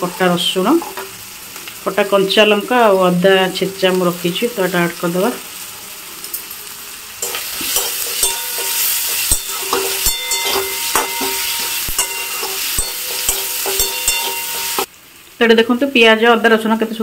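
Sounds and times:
food sizzling in hot oil: 0:00.0 - 0:17.0
spatula knocking against pan: 0:07.2 - 0:14.9.

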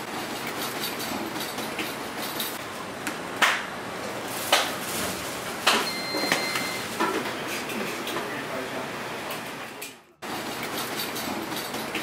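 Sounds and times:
kitchen background noise: 0:00.0 - 0:12.0
high steady beep: 0:05.8 - 0:06.8.

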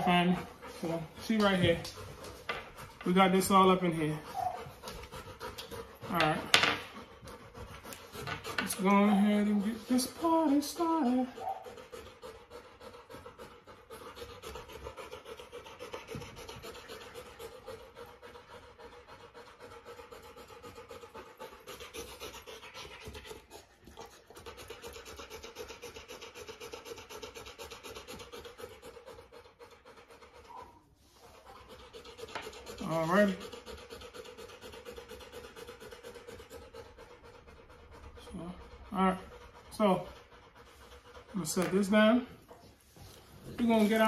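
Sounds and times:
puppy panting: 0:00.0 - 0:44.0.

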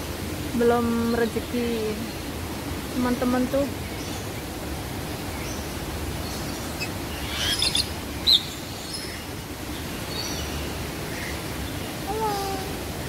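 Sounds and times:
birds chirping: 0:05.2 - 0:12.7.

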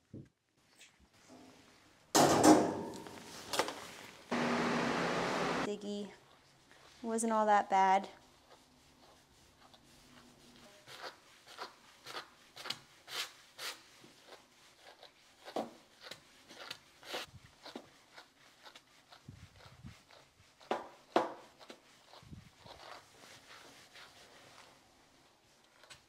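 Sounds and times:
brush raking through cat fur: 0:08.2 - 0:26.0.

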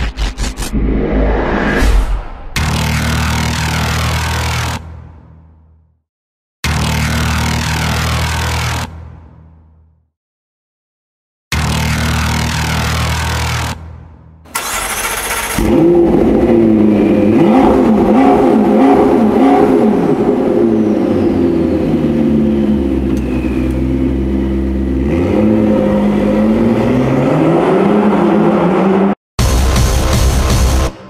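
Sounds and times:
car engine starting and revving: 0:14.5 - 0:29.2.

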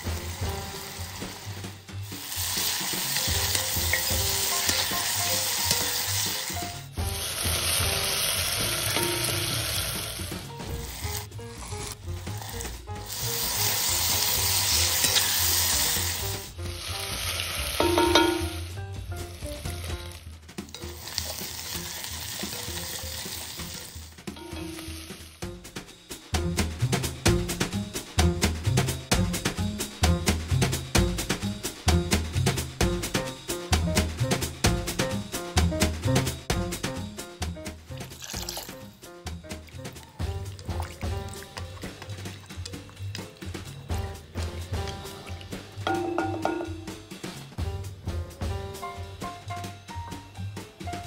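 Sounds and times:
vegetables sizzling in oil: 0:00.0 - 0:27.7, 0:37.9 - 0:47.5
wooden spatula stirring: 0:02.1 - 0:09.7, 0:39.4 - 0:46.9.

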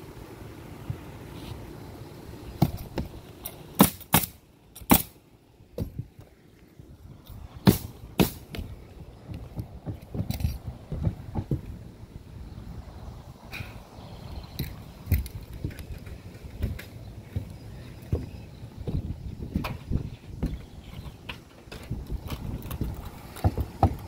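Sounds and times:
footsteps knocking on roof: 0:09.3 - 0:11.7, 0:16.6 - 0:20.7, 0:23.4 - 0:24.0.

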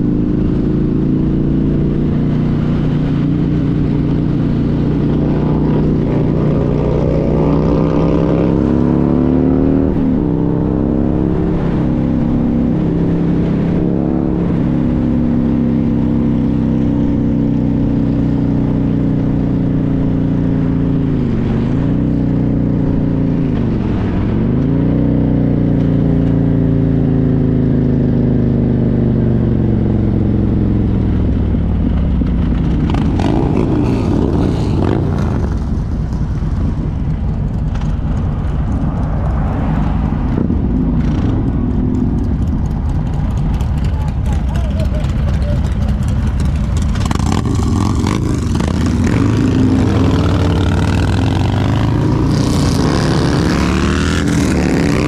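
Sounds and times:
motorcycle engine at speed: 0:00.0 - 0:55.0
wind noise: 0:29.5 - 0:44.7.

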